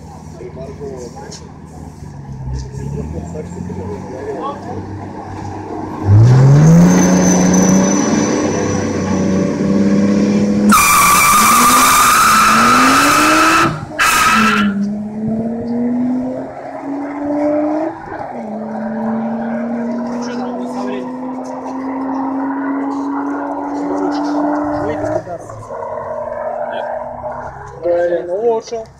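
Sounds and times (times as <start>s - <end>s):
car engine at high revs: 0.0s - 28.8s
tyres screeching in wheelspin: 5.3s - 9.6s, 10.6s - 15.0s.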